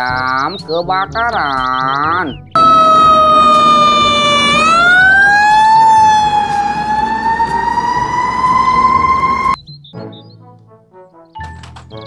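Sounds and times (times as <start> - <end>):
fire truck siren wailing: 2.6 - 9.6.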